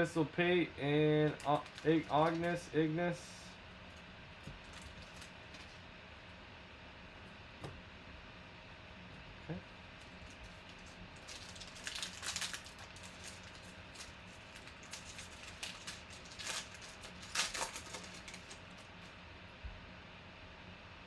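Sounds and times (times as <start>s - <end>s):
foil wrapper crinkling and tearing: 1.2s - 2.7s, 4.4s - 5.8s, 9.9s - 19.1s.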